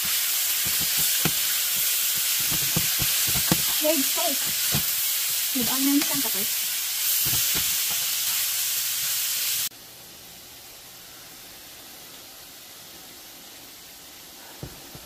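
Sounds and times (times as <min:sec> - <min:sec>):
meat sizzling in a frying pan: 0:00.0 - 0:09.7
faint steady hiss: 0:00.0 - 0:15.0.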